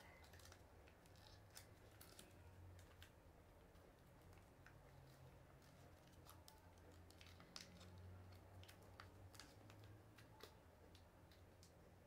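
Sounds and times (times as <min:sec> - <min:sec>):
paper crinkling as folded: 0:00.1 - 0:03.1.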